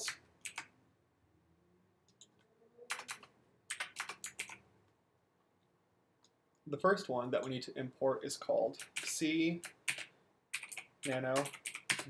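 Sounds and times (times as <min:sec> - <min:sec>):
computer keyboard typing: 0:00.0 - 0:00.7, 0:02.9 - 0:04.6, 0:08.8 - 0:12.0.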